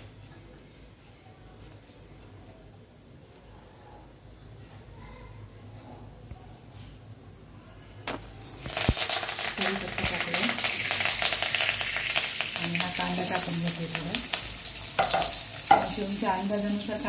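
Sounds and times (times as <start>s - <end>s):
food sizzling in hot oil: 8.4s - 17.0s
knocks on metal pan: 15.0s - 16.0s.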